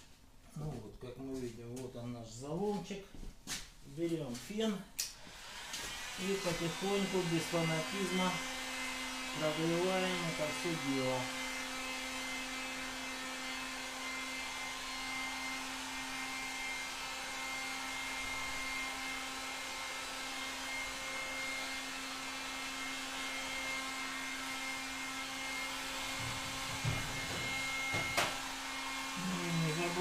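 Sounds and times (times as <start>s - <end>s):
heat gun fan whirring: 5.0s - 30.0s
soft knock: 26.2s - 28.3s.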